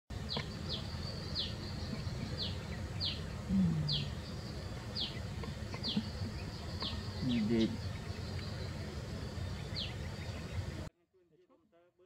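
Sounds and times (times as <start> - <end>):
small bird chirping: 0.1 - 10.9
low outdoor background noise: 0.1 - 12.0.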